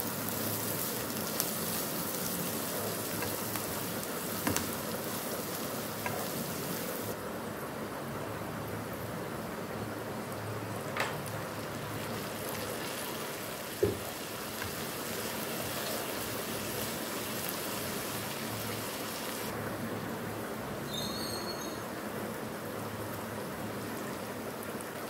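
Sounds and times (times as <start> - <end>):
food sizzling in a wok: 0.0 - 7.3, 11.3 - 19.6.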